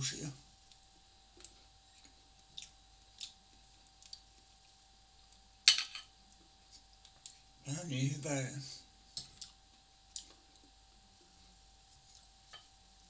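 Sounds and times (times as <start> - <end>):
soft chewing: 0.6 - 5.5, 6.2 - 7.6, 9.1 - 12.8.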